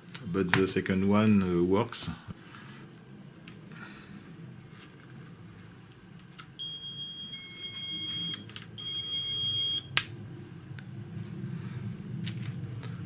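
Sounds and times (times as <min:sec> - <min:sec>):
high-pitched buzzer beep: 0:06.6 - 0:09.9.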